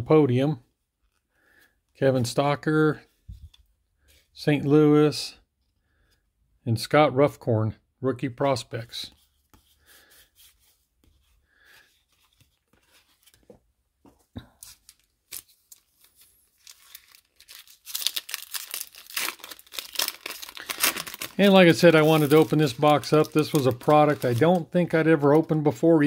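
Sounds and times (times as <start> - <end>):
foil wrapper tearing and crinkling: 14.8 - 25.5.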